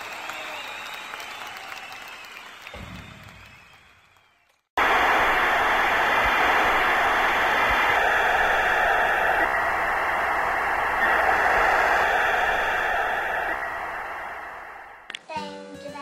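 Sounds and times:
television static hiss: 4.8s - 15.2s.

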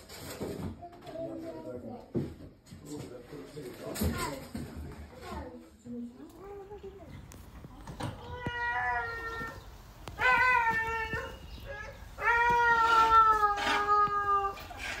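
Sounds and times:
meow-like animal cries: 8.2s - 15.0s.

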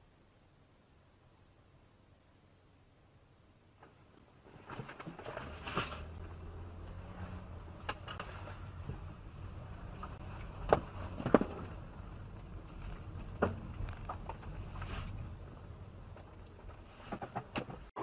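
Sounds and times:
car cabin rumble: 5.2s - 18.0s.

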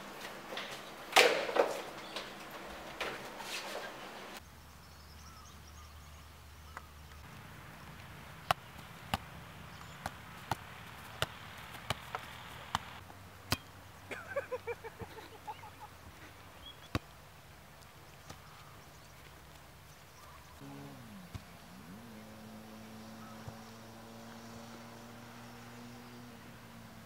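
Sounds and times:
football being kicked: 10.0s - 12.9s.

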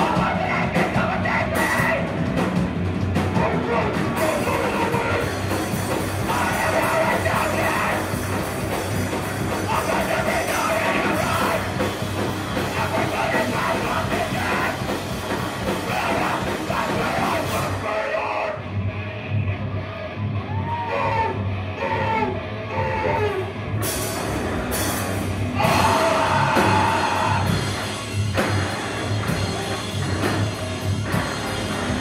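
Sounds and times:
drums and cymbals: 0.0s - 17.9s, 23.0s - 32.0s
distorted electric guitars: 0.0s - 32.0s
person yelling vocals: 25.6s - 27.6s.

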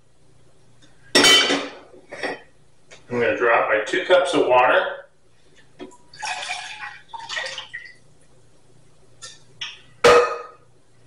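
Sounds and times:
water splashing into saucepan: 5.9s - 8.0s.

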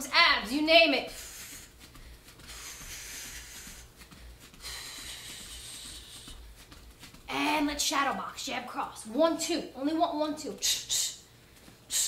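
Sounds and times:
person breathing hard: 1.1s - 6.8s.

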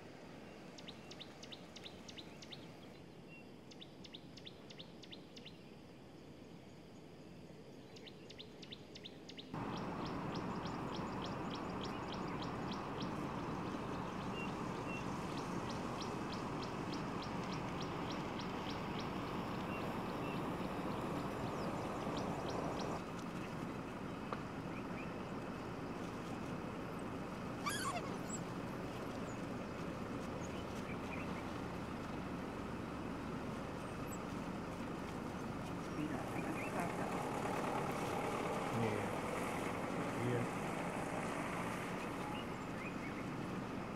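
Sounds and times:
outdoor background noise: 0.0s - 43.9s
birds calling: 9.6s - 43.9s.

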